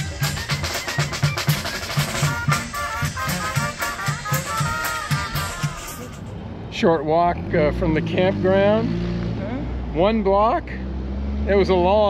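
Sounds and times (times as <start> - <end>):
drum beat: 0.0 - 6.3
busy percussion: 0.0 - 6.4.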